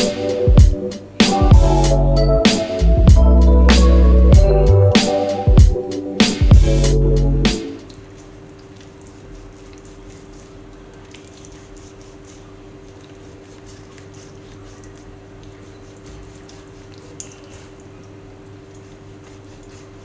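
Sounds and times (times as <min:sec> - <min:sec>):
steady low hum: 0:00.0 - 0:08.0.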